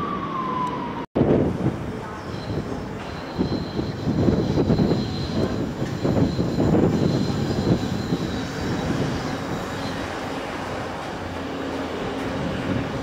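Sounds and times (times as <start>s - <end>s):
locomotive rumble: 0.9s - 13.0s
thin high whine: 2.3s - 12.1s.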